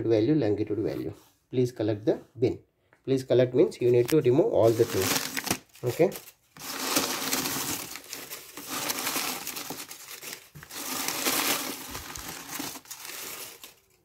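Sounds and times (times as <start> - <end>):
newspaper rustling and crinkling: 3.9 - 14.0.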